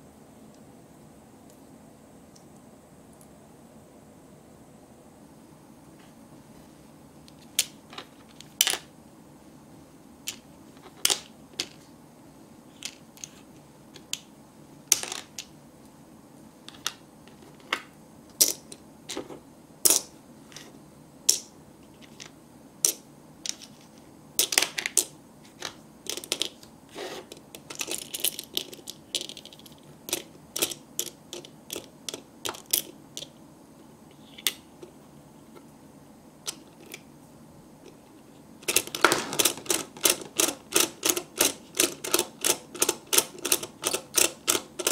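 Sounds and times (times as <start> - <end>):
plastic toy pieces clicking: 26.1 - 26.6, 27.7 - 33.3, 38.6 - 44.9
toy crank clicking: 38.6 - 44.9.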